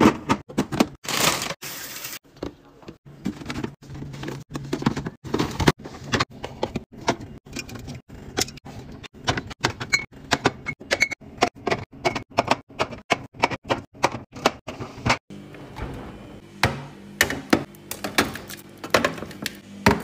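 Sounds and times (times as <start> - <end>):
items clicking and knocking in fridge: 0.0 - 1.6, 2.3 - 20.0.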